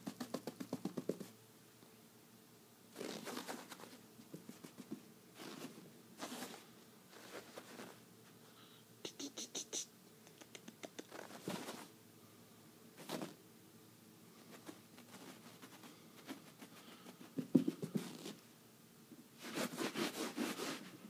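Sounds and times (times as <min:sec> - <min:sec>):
claws scratching on rug: 0:03.0 - 0:08.0, 0:11.1 - 0:11.9, 0:14.4 - 0:18.4, 0:19.4 - 0:21.0.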